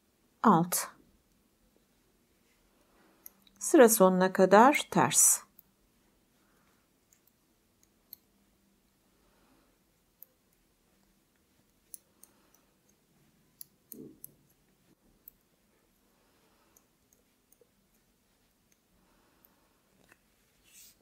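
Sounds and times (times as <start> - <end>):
metal knitting needles clicking: 3.2 - 3.6, 7.0 - 8.4, 10.1 - 15.4.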